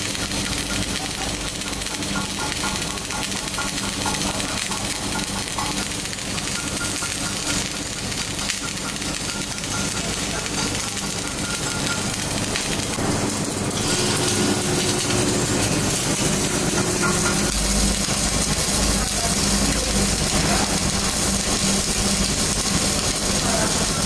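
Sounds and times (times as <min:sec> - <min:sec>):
machine hum: 0:00.0 - 0:24.0
welding arc crackling hiss: 0:00.0 - 0:24.0.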